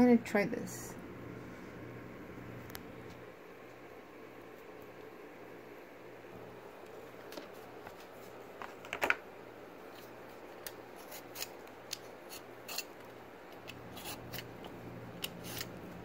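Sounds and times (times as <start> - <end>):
blade peeling cucumber skin: 10.6 - 16.0.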